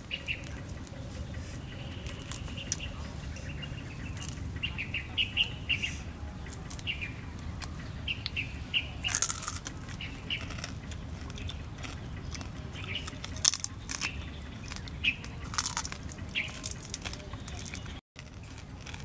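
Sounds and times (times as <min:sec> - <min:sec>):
chewing and crunching: 0:00.0 - 0:05.0, 0:06.2 - 0:19.0
bird chirps: 0:00.0 - 0:18.0.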